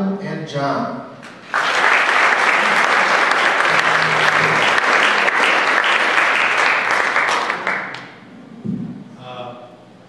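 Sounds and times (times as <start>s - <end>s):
audience applauding: 1.2s - 8.2s.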